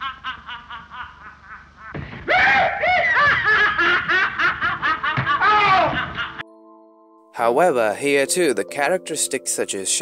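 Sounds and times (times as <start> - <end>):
high-pitched rapid laughter: 2.4 - 6.4.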